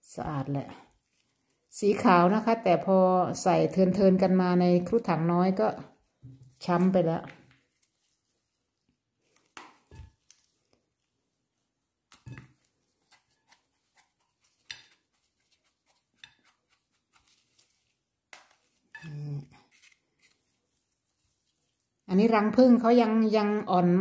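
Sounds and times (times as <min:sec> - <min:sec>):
knife scraping mushroom: 0:12.1 - 0:20.6.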